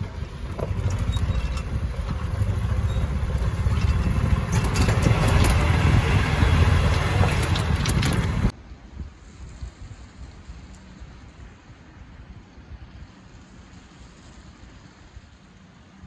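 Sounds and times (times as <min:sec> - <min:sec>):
golf cart rumbling: 0:00.0 - 0:08.6
rattling clicks: 0:03.7 - 0:05.9, 0:06.9 - 0:08.5.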